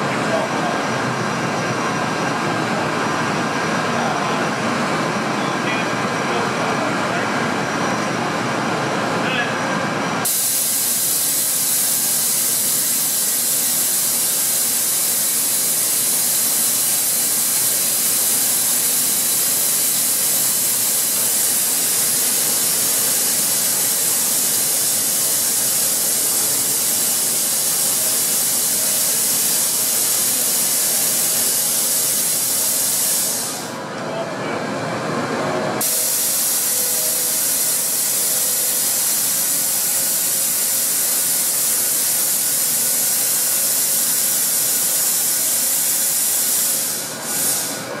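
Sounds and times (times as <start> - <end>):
loud steady hiss: 10.2 - 33.8, 35.8 - 48.0.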